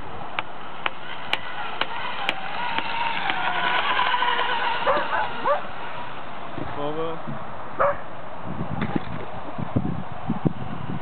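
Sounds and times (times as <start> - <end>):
model boat engine whine: 0.0 - 7.3.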